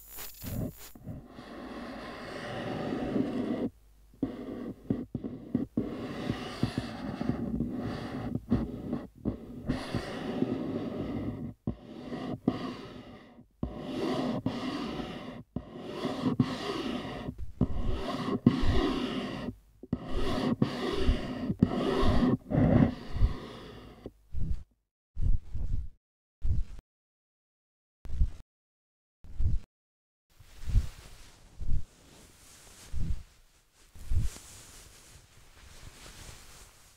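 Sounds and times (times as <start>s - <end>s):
noisy breath-like sounds: 1.0s - 26.8s.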